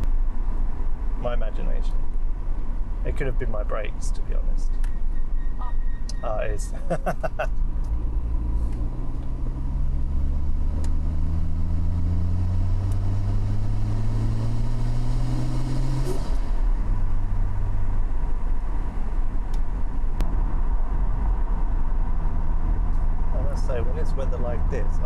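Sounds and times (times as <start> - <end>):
low road rumble: 0.0 - 25.0
car engine revving through gears: 7.8 - 17.8.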